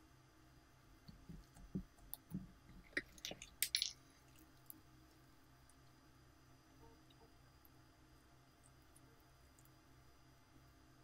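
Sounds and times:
slime squelching: 0:01.3 - 0:04.8
beads clicking and crackling: 0:02.8 - 0:04.0.

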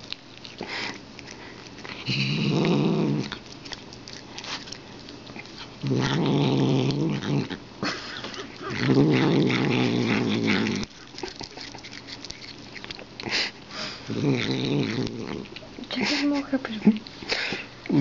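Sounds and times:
chewing clicks: 0:00.0 - 0:07.6, 0:08.3 - 0:13.5, 0:14.2 - 0:16.0
cat growling: 0:01.8 - 0:03.8, 0:05.4 - 0:07.6, 0:08.2 - 0:15.7.

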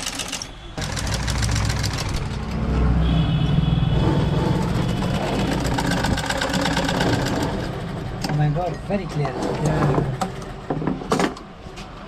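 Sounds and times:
treadle sewing machine stitching: 0:04.7 - 0:08.5.

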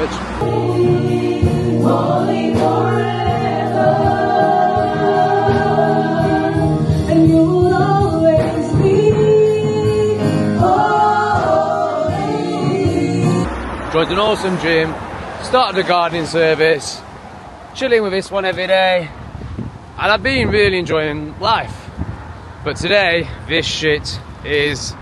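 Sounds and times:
choir singing: 0:00.2 - 0:13.8.

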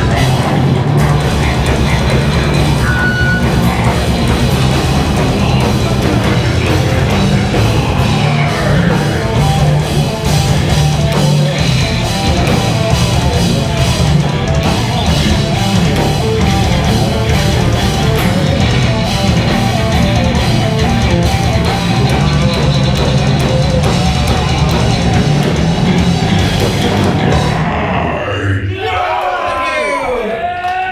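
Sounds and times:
heavy metal band playing live: 0:00.0 - 0:29.2.

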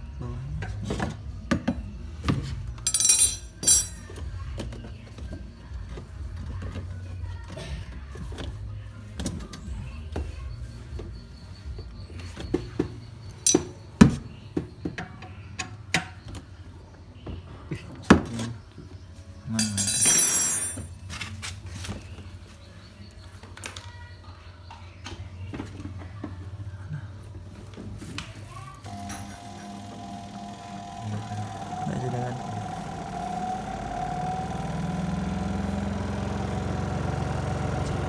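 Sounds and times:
steady low hum: 0:28.9 - 0:38.0.

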